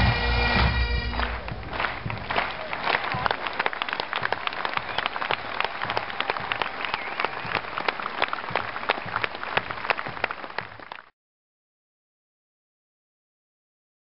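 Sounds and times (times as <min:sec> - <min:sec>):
audience applauding: 0:00.4 - 0:11.1.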